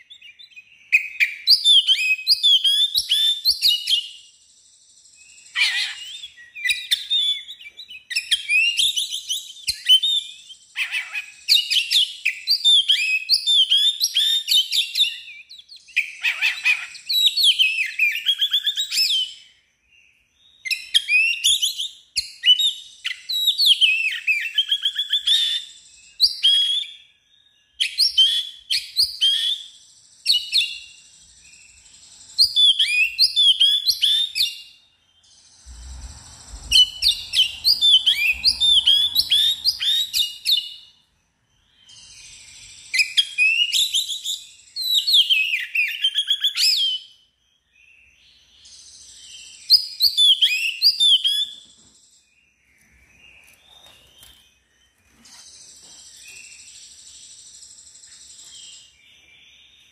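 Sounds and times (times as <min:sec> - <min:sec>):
bird song with whistles and trills: 0:00.0 - 0:59.9.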